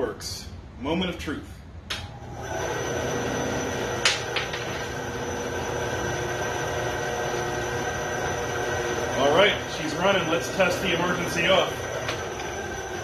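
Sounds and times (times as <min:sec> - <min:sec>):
bandsaw switch click: 0:01.9 - 0:02.1
bandsaw motor whirring: 0:02.0 - 0:13.0.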